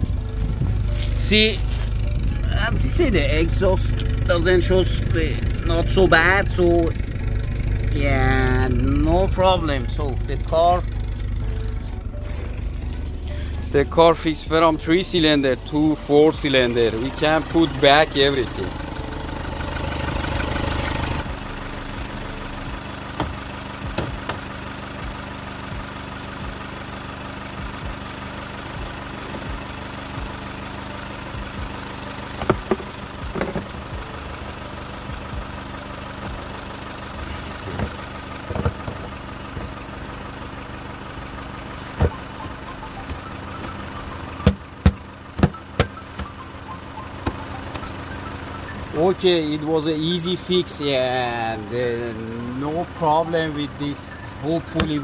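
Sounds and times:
car engine idling: 0.0s - 55.0s
clicks and knocks: 32.4s - 33.7s.

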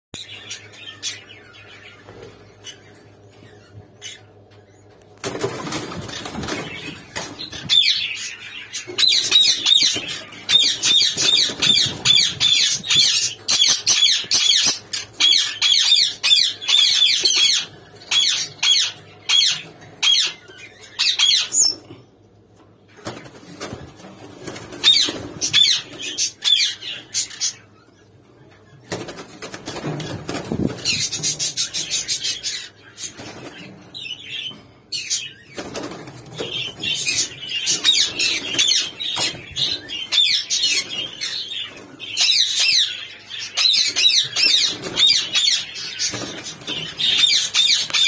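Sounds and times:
wings flapping: 5.2s - 7.9s, 22.9s - 26.2s, 28.8s - 31.5s, 35.5s - 39.9s, 44.3s - 48.0s
parrots squawking: 6.1s - 21.8s, 24.8s - 27.7s, 36.5s - 48.0s.

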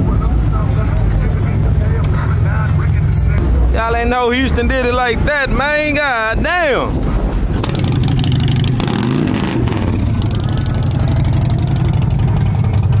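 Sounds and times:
car engine exhaust rumble: 6.9s - 13.0s.

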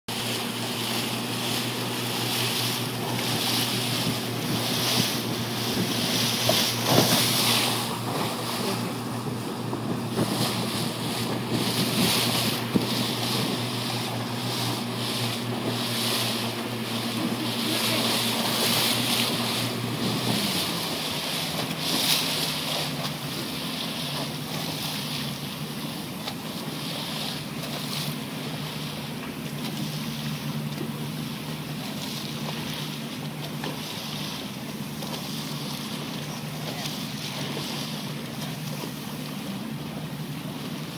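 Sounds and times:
boat engine running: 0.1s - 40.9s
water washing past: 0.1s - 40.9s.

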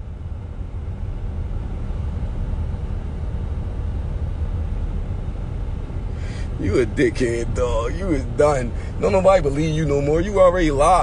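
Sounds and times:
car engine rumble: 0.0s - 11.0s
road noise: 6.0s - 11.0s.

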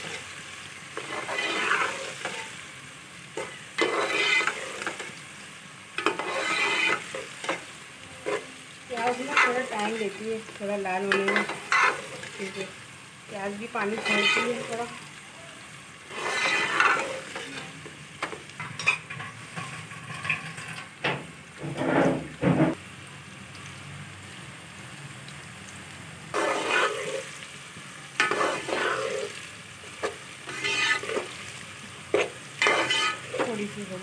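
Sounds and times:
onions sizzling in oil: 0.0s - 34.0s
ladle scraping a pot: 1.0s - 2.5s, 3.4s - 5.0s, 6.0s - 7.6s, 11.2s - 12.3s, 14.0s - 14.8s, 16.1s - 17.6s, 21.6s - 22.8s, 26.3s - 27.3s, 28.2s - 29.4s, 30.0s - 31.4s, 32.1s - 33.5s.

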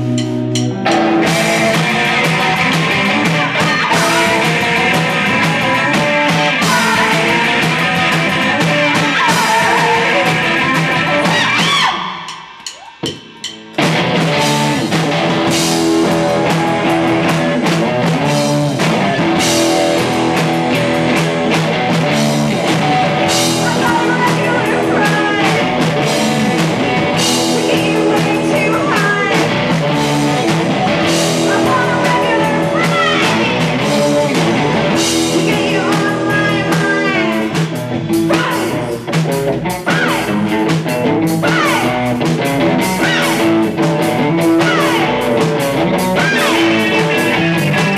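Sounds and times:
bass guitar: 0.0s - 47.9s
drum kit: 0.0s - 47.9s
electric guitar: 0.0s - 47.9s.

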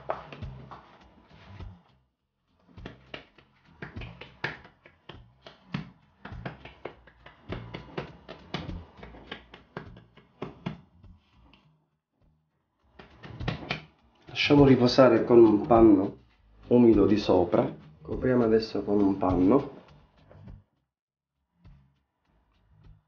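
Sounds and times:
hands slapping dough: 0.0s - 1.8s, 2.6s - 11.6s, 12.9s - 16.2s.

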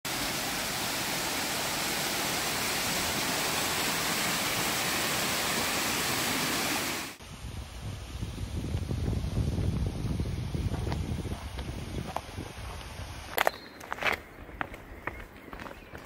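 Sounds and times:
waterfall rushing over rock: 0.1s - 7.2s.

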